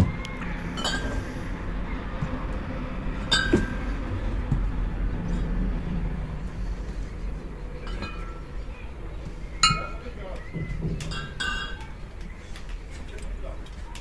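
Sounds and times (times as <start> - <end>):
low rumble: 0.0 - 12.2
glass bottles clinking: 0.7 - 1.3, 3.2 - 3.8, 7.8 - 8.5, 10.9 - 12.0.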